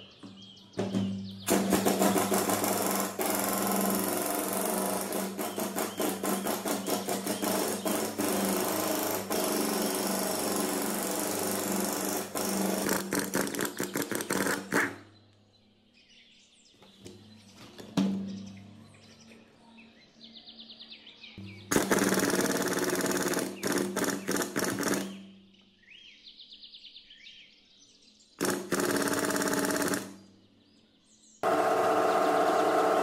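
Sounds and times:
impact wrench hammering: 1.5 - 14.5, 21.4 - 25.0.

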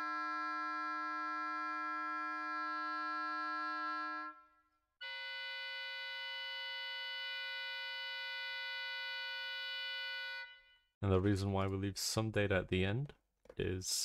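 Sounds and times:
oboe sustained multiphonic: 0.0 - 4.5.

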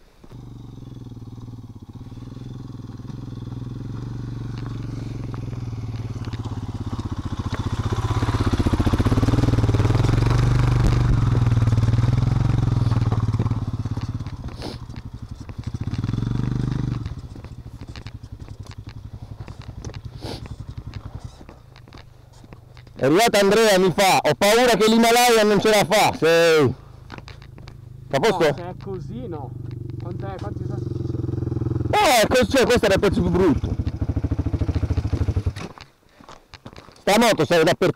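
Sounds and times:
motorcycle engine running: 0.2 - 35.9.

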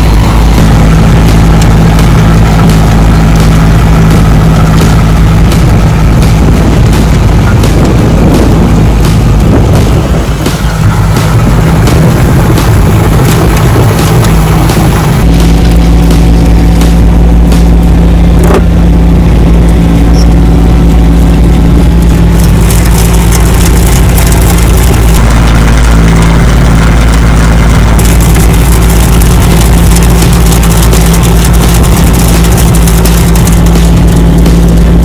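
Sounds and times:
tractor engine running: 0.0 - 35.0.

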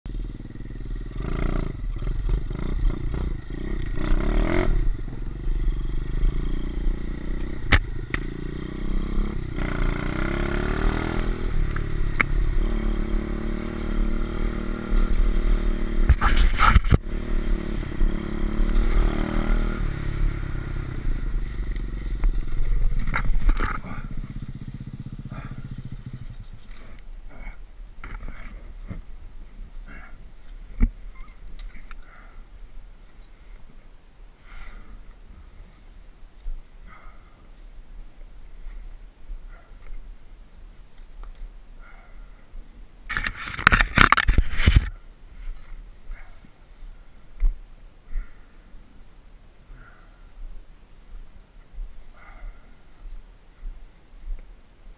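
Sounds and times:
dirt bike engine revving: 0.1 - 27.0.

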